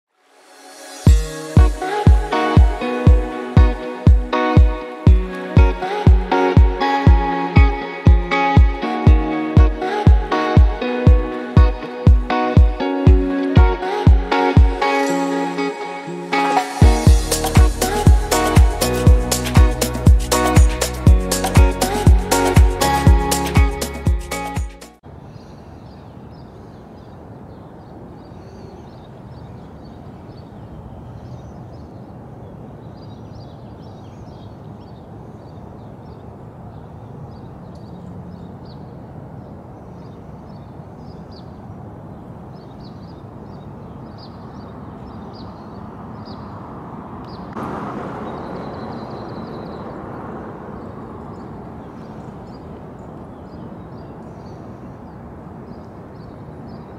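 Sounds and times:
rushing swell: 0:00.1 - 0:13.1, 0:13.8 - 0:24.9, 0:47.5 - 0:51.1
small birds chirping: 0:25.3 - 0:56.9.

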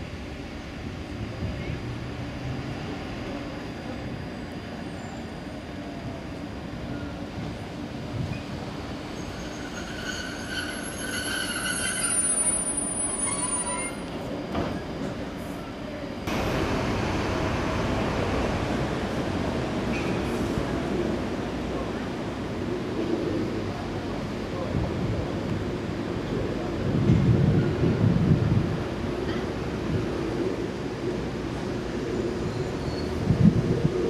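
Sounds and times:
train wheels rolling slowly: 0:00.0 - 0:34.0
wheel flanges squealing: 0:09.1 - 0:14.2.

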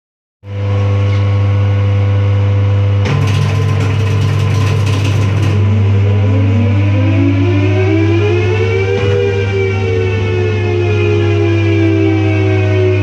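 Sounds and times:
phase converter humming: 0:00.4 - 0:13.0
rattling whirr: 0:03.0 - 0:06.1
air raid siren rising tone: 0:05.0 - 0:13.0.

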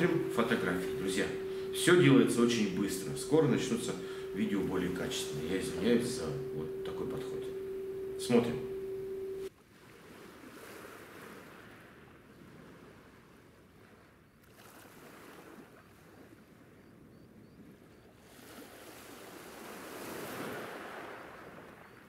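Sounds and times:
faint high chirps: 0:00.0 - 0:09.5.

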